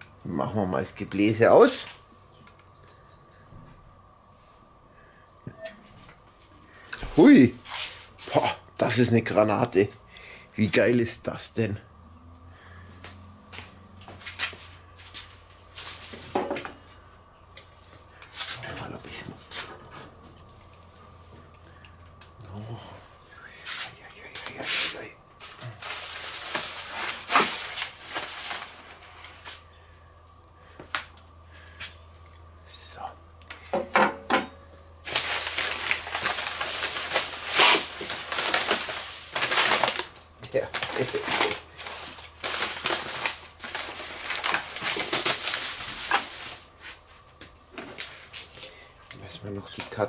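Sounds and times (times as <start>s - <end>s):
aluminium foil crinkling: 6.7s - 9.8s, 14.0s - 22.4s, 23.6s - 29.8s, 35.0s - 50.0s
metal grill tools clinking: 16.5s - 17.2s
paper being handled: 23.8s - 29.6s, 35.1s - 47.3s.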